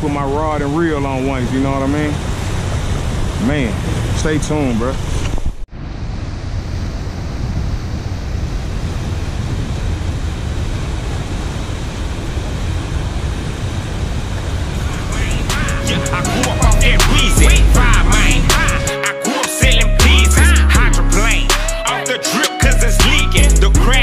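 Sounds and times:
whitewater roar: 0:00.0 - 0:19.3
music: 0:14.8 - 0:24.0.

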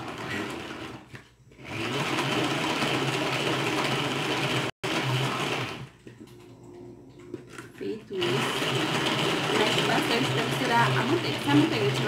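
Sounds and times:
hand-cranked mixer whirring: 0:00.0 - 0:06.1, 0:07.5 - 0:12.0.

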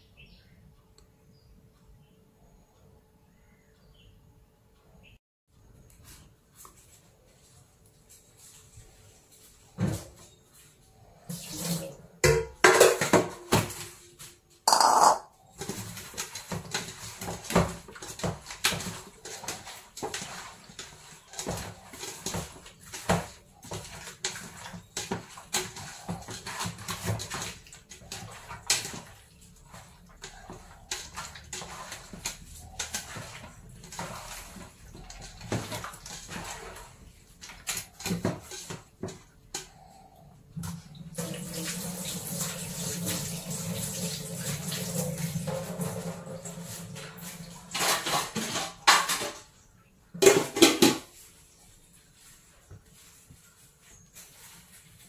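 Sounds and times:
metal pots clanking in a sink: 0:11.3 - 0:14.0, 0:14.7 - 0:39.9, 0:40.6 - 0:51.2.

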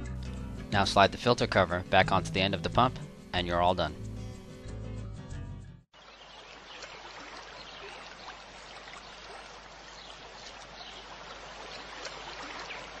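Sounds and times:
fountain water splashing and trickling: 0:06.0 - 0:13.0.

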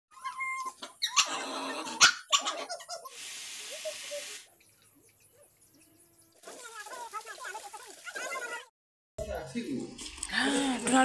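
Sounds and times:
steady hiss: 0:03.1 - 0:04.5.

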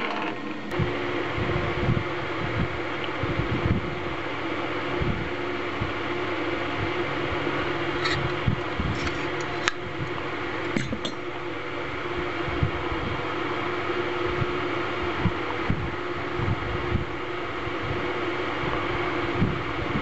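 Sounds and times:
fan-like mechanical hum: 0:00.0 - 0:20.0.

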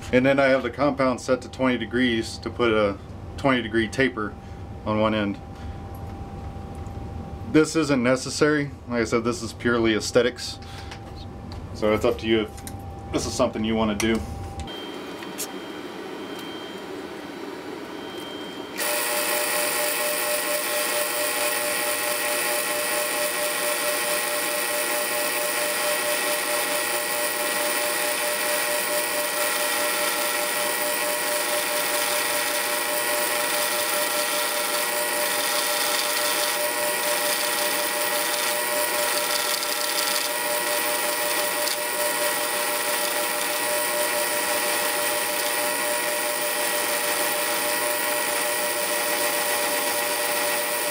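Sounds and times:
lathe running: 0:18.8 - 0:50.9
turning tool cutting metal: 0:18.8 - 0:50.9.

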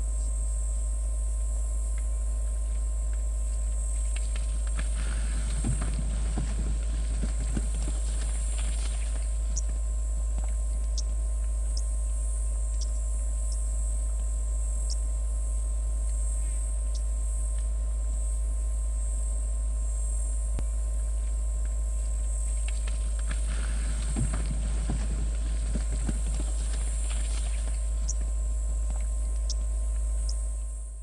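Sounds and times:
hooves thudding on dry ground: 0:03.2 - 0:12.2, 0:21.3 - 0:30.2
high insect buzz: 0:03.4 - 0:21.4, 0:22.0 - 0:31.0
low rumble: 0:04.3 - 0:09.7, 0:22.7 - 0:30.3.

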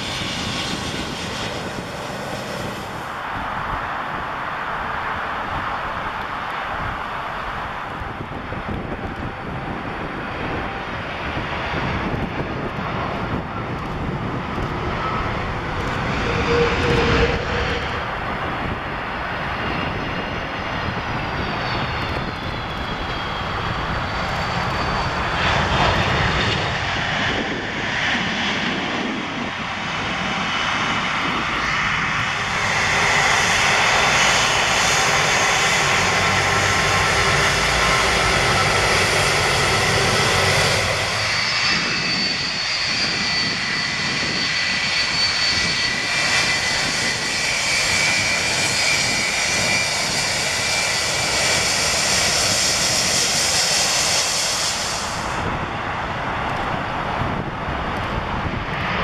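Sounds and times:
jet engines rumbling: 0:00.0 - 0:59.0
gliding whine: 0:12.9 - 0:26.8.

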